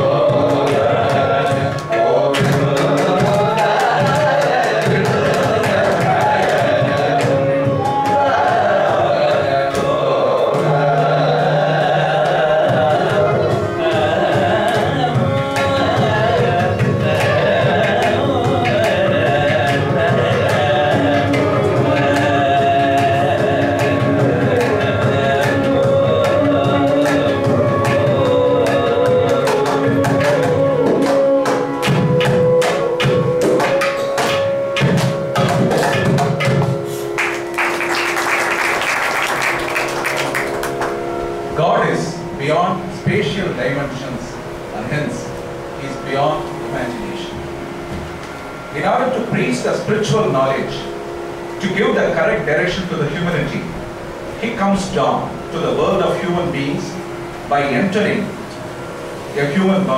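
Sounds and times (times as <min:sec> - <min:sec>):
men singing: 0:00.0 - 0:36.5
hand drum strokes: 0:00.0 - 0:38.7, 0:39.4 - 0:50.8
violin: 0:00.0 - 0:59.9.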